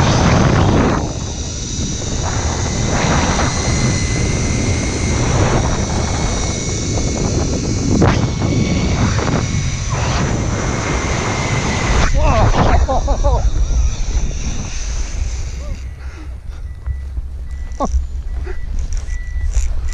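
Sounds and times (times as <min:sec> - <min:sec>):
faint high whine: 0:00.0 - 0:19.9
wind and pulley roar: 0:00.0 - 0:19.9.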